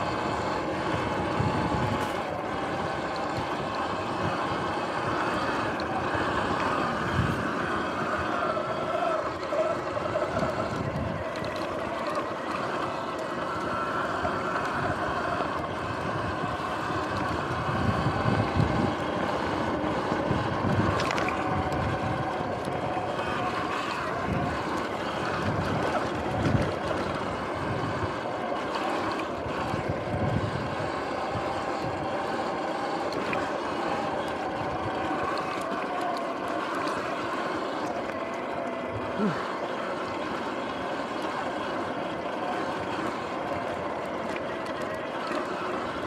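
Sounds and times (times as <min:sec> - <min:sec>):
wind rush on microphone: 0:00.0 - 0:12.1, 0:14.3 - 0:35.7
electric motor whine: 0:00.0 - 0:46.0.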